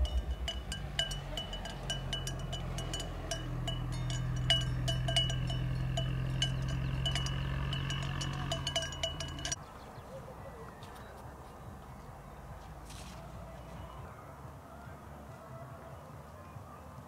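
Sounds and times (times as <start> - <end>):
low steady hum: 0.0 - 9.6
metal livestock bell clanking: 0.0 - 9.6
faint outdoor ambience: 0.0 - 17.0.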